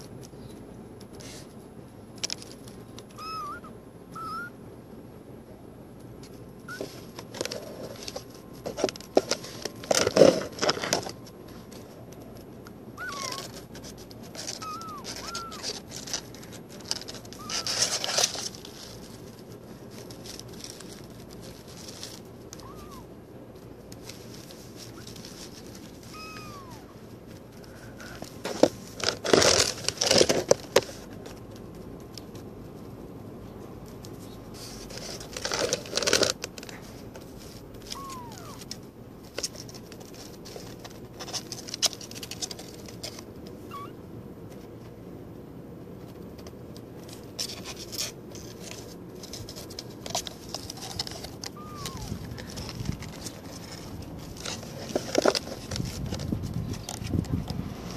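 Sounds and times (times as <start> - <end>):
high chirping calls: 3.2 - 4.5
kitten scrambling in box: 13.0 - 23.2, 24.0 - 31.2, 37.5 - 44.0, 47.4 - 57.1
shredded paper rustling: 13.0 - 32.5, 33.9 - 43.2, 47.0 - 57.3.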